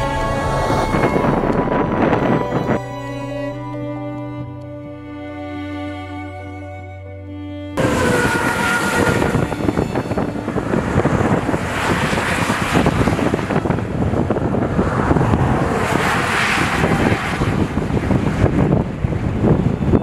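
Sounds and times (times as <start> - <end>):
wind gusting on microphone: 0.0 - 20.0.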